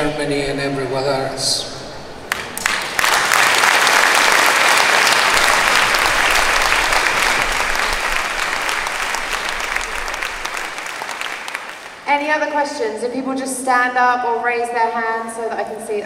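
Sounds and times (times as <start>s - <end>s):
audience applauding: 2.3s - 12.1s.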